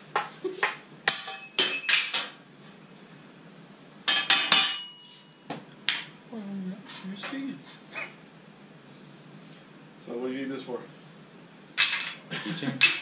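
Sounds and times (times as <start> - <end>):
steel plate ringing: 4.1 - 5.1.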